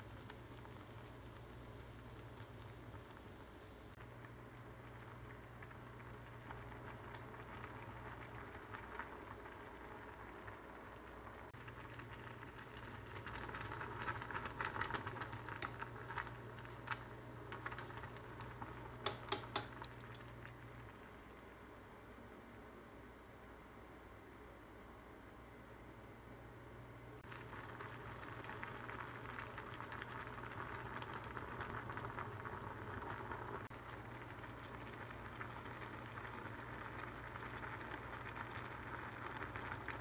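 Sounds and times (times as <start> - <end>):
pot of noodles boiling: 0.0 - 26.2, 26.9 - 40.0
chopsticks stirring soup: 14.2 - 20.4
sharp clicks: 19.0 - 20.3.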